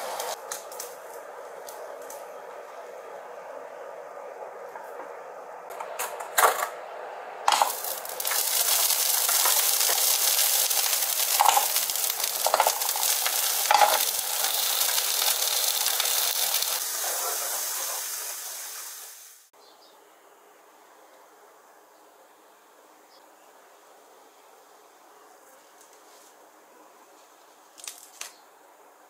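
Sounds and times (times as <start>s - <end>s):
food sizzling in pan: 0.0s - 0.4s, 7.5s - 19.5s
utensils clinking against pan: 7.5s - 16.7s.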